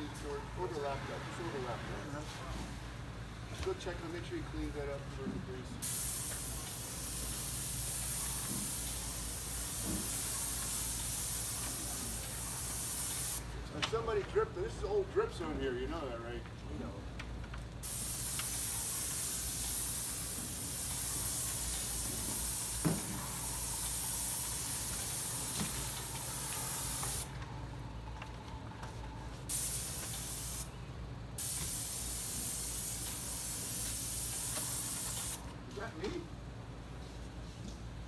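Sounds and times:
paint spray gun hissing: 5.8s - 13.4s, 17.8s - 27.3s, 29.5s - 30.7s, 31.4s - 35.4s.

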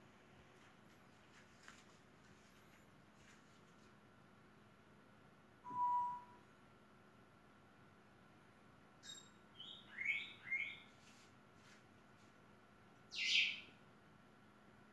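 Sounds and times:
harsh chirp: 5.7s - 6.4s.

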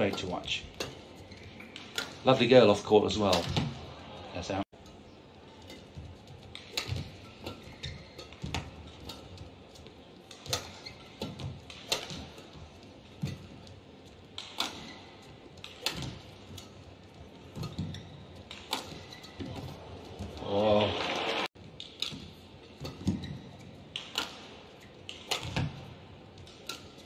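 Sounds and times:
racket striking shuttlecock: 4.8s - 9.5s, 10.2s - 12.6s, 14.4s - 16.9s, 17.5s - 20.4s, 21.7s - 27.0s.

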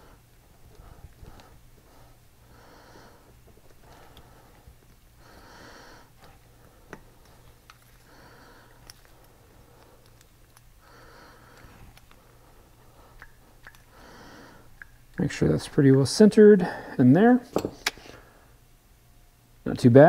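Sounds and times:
slow breathing through the nose: 0.0s - 14.8s
light clicks of small parts: 8.7s - 10.7s.

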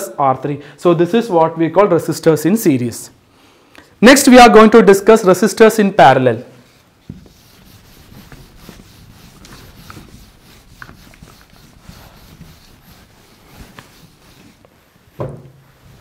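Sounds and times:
eraser rubbing on whiteboard: 6.6s - 16.0s.

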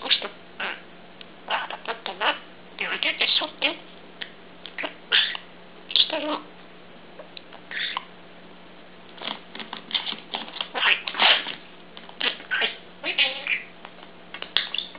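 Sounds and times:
budgerigar chirping: 1.5s - 3.4s, 4.7s - 5.5s, 7.7s - 8.1s, 10.7s - 11.5s, 12.2s - 13.7s, 14.4s - 14.9s.

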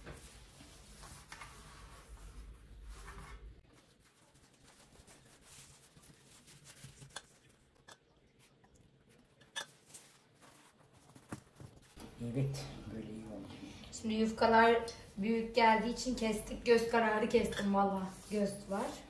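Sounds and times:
pastry sheets rustling: 0.0s - 7.8s, 9.1s - 12.0s, 14.4s - 19.0s.

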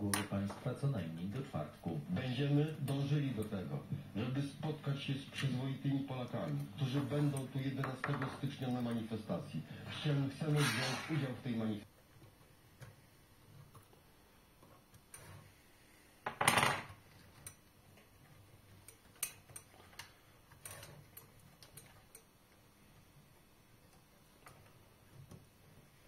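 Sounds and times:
small parts clicking and knocking: 16.2s - 25.9s.

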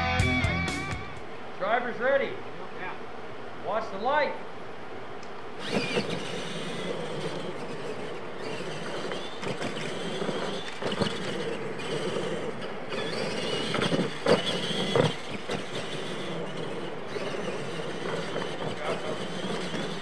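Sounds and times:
tyres on dirt: 5.3s - 20.0s
toy truck motors whining: 5.5s - 20.0s
truck knocking on track: 5.6s - 20.0s.

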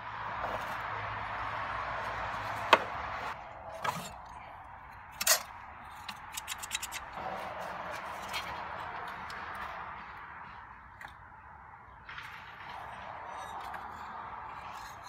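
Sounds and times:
metal hand tools clicking: 5.1s - 7.2s.

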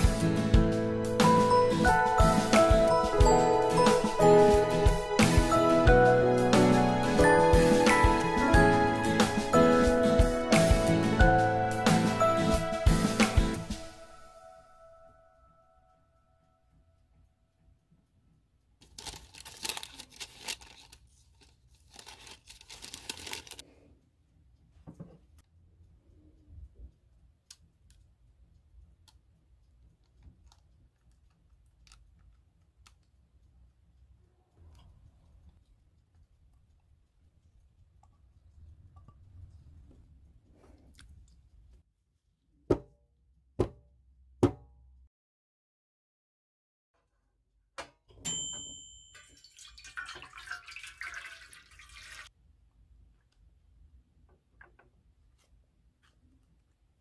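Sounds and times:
faint room hum: 15.1s - 42.5s
water pouring into metal tin: 49.2s - 52.3s.

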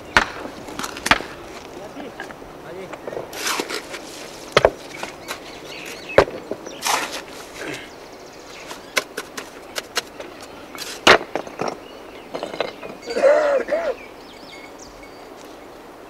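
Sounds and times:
stones clattering and scraping: 3.0s - 7.8s, 8.5s - 13.0s
hammer knocking on stones: 4.5s - 5.4s, 6.1s - 6.8s, 11.0s - 13.0s.

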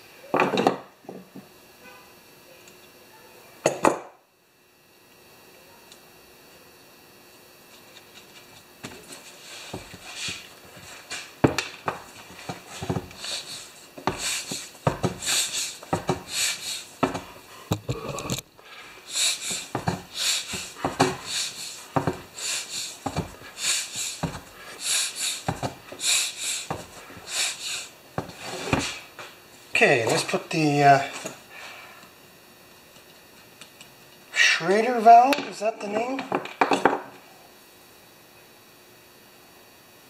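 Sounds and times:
air hissing from inner tube: 9.0s - 29.1s.

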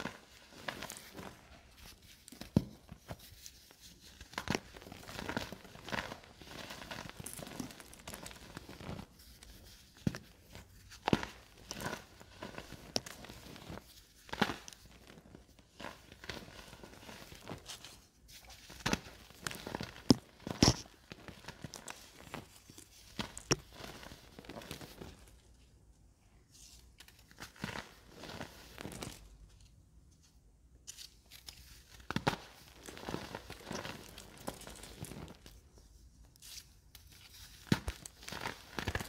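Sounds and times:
crumbling and powder rustling: 0.0s - 25.6s, 26.5s - 29.7s, 31.8s - 39.0s
hardened powder cracking: 4.3s - 9.0s, 18.7s - 25.3s, 31.4s - 35.7s.

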